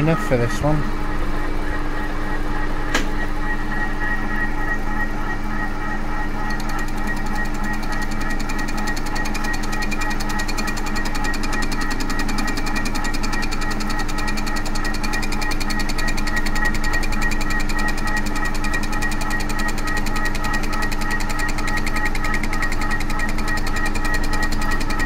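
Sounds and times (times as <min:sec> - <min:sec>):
milling machine whine: 0:00.0 - 0:25.0
cutter ticking on metal: 0:06.4 - 0:25.0.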